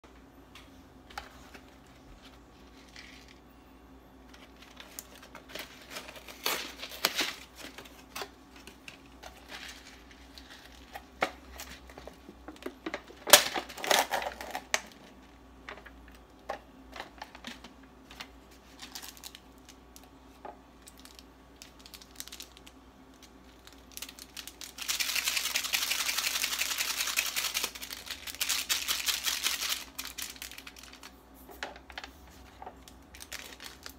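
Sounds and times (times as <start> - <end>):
packaging crinkling: 4.4 - 12.2, 13.2 - 15.3, 17.0 - 20.1, 20.8 - 33.9
packaging clicks and rustles: 4.4 - 20.1, 20.8 - 33.9.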